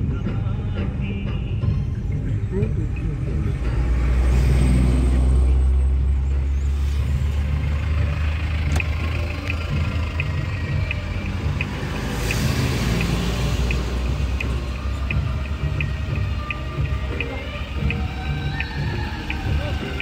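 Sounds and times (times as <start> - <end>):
engine rumbling: 0.0 - 20.0
quick regular ticking: 8.4 - 20.0.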